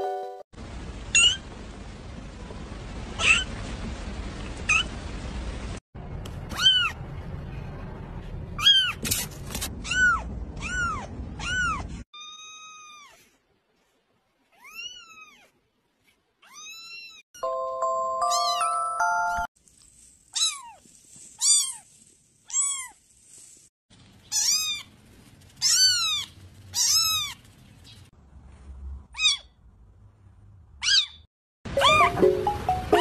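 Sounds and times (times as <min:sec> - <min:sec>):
steady musical tones: 0:31.7 - 0:33.0.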